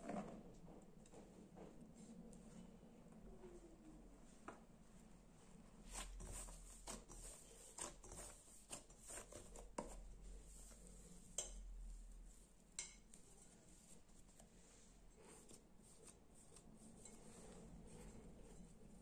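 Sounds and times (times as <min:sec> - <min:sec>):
dough squishing: 0:05.8 - 0:19.0.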